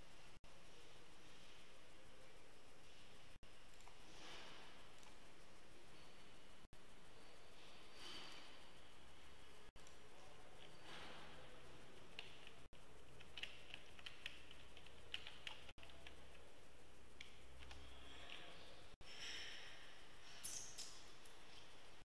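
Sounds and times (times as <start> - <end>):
faint keyboard typing: 2.2 - 5.7, 7.5 - 18.8.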